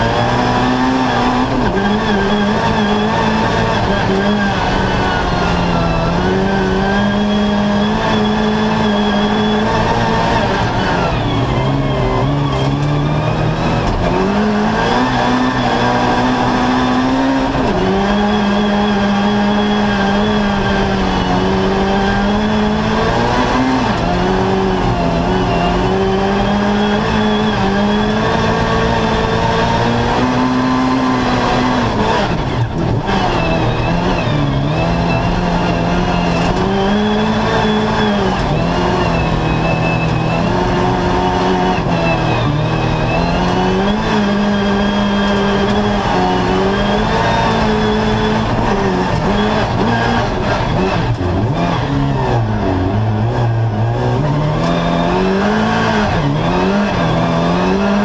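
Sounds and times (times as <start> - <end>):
car engine revving under load: 0.0 - 58.0.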